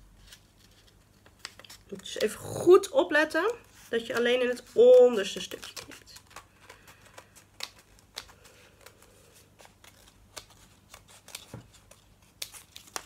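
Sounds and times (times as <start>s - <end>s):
scissors snipping paper: 9.7s - 13.0s.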